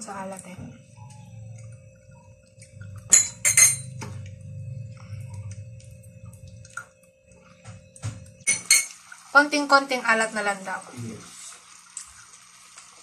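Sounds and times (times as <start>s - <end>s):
low hum with held tones: 0.0s - 12.4s
metal spoon clinking on bowl: 3.1s - 4.2s, 8.4s - 9.0s.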